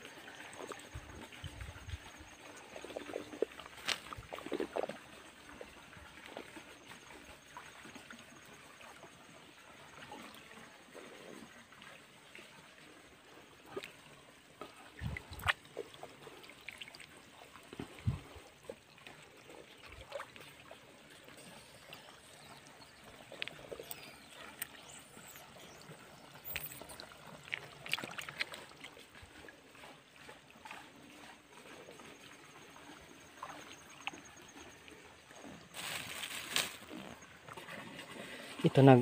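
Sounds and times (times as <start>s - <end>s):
water trickling: 0.0s - 39.0s.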